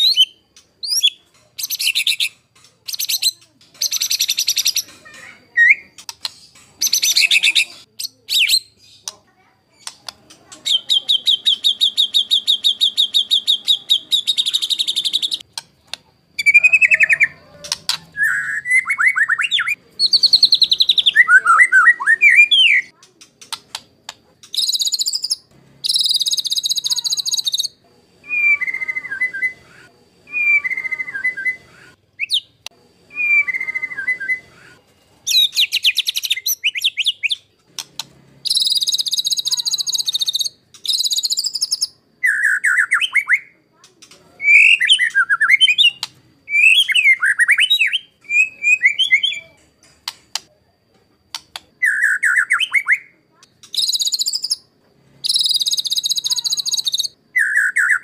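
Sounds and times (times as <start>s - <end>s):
bird singing whistled phrases: 0.0s - 4.8s, 10.6s - 15.4s, 18.1s - 22.9s, 24.5s - 34.7s, 35.3s - 37.5s, 38.4s - 43.6s, 44.4s - 49.6s, 51.8s - 58.0s.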